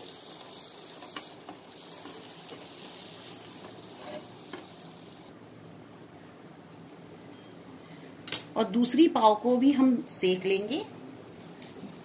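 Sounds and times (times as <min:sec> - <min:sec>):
butter sizzling in a frying pan: 0:00.0 - 0:05.3.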